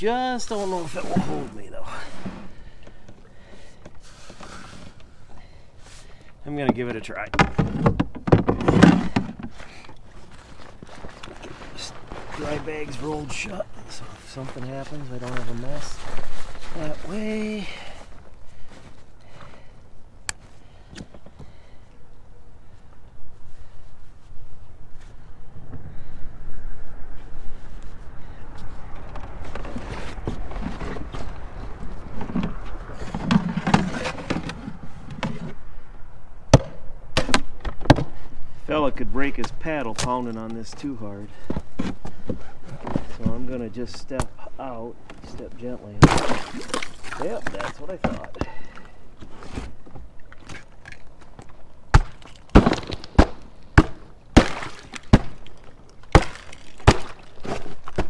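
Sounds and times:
canoe bumping against ice: 0:06.0 - 0:19.7, 0:29.3 - 0:35.6, 0:45.0 - 0:58.0
paddle knocking on ice: 0:51.9 - 0:58.0.

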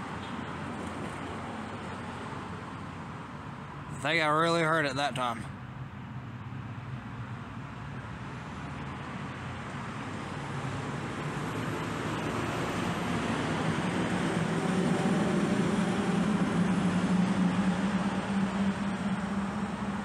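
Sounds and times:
vehicle approaching: 0:06.2 - 0:20.0.

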